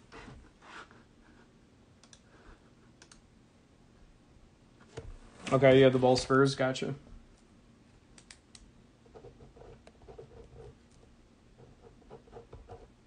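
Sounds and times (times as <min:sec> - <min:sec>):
faint sharp clicks: 0:08.2 - 0:08.7.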